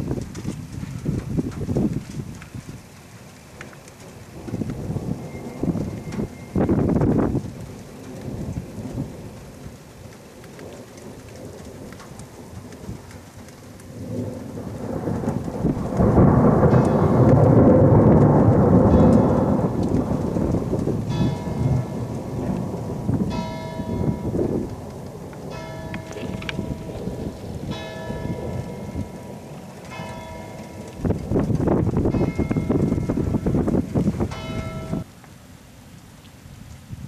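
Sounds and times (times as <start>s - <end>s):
thunder rumbling: 0.0s - 35.1s
rain: 0.0s - 37.0s
ringing bell-like tones: 34.3s - 35.1s.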